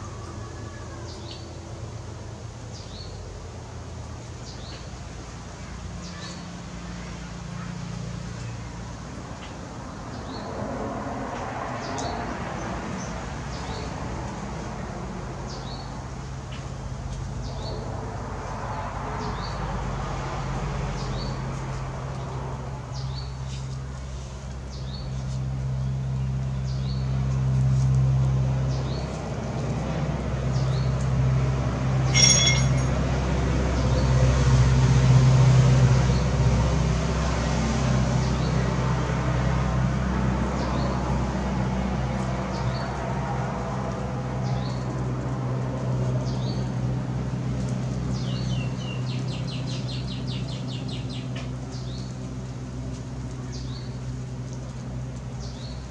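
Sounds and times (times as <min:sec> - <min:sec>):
loud high call: 0:32.1 - 0:32.9.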